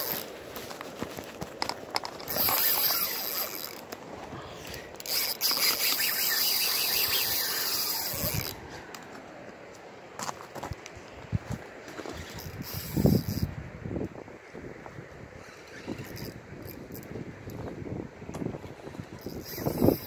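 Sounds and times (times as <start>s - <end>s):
fishing reel drag buzzing: 0.0s - 0.2s, 2.2s - 3.9s, 5.0s - 8.6s, 12.1s - 13.5s, 15.4s - 17.1s, 19.2s - 20.0s.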